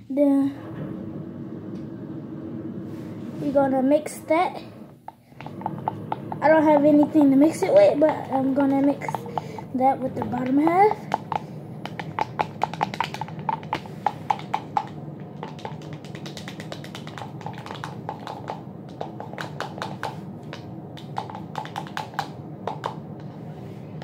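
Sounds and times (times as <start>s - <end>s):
utensil stirring slime in cup: 5.1s - 23.4s.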